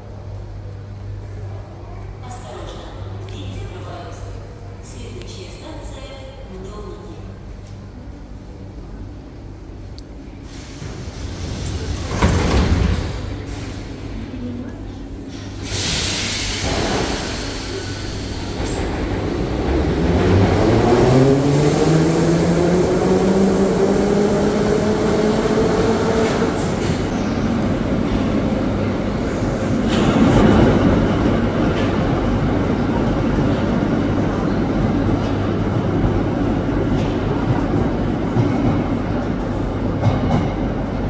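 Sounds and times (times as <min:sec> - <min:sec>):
train wheels rumbling on rail: 0:00.1 - 0:41.0.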